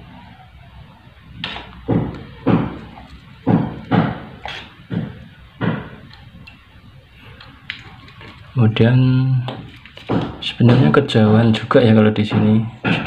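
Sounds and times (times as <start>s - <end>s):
dull knocks and thuds: 1.5s - 6.1s, 9.5s - 11.6s.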